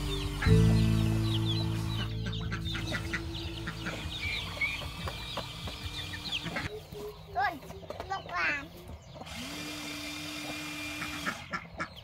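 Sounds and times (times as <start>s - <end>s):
hens clucking: 0.0s - 9.3s, 10.4s - 12.0s
poultry chirping and peeping: 0.0s - 12.0s.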